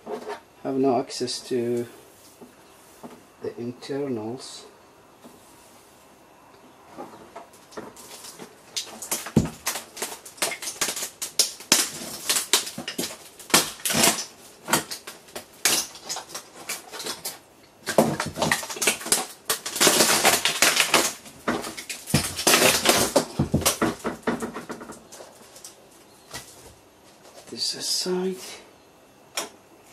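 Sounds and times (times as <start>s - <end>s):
panel crackling and snapping: 7.4s - 26.6s.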